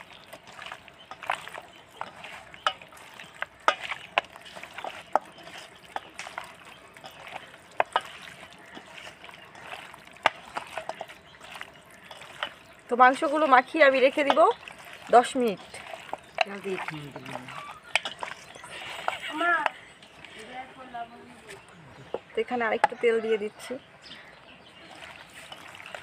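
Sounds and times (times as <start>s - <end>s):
meat knocking against metal bowl: 0.0s - 14.8s, 15.6s - 19.8s
wet squishes of raw meat: 0.0s - 20.4s, 24.3s - 26.0s.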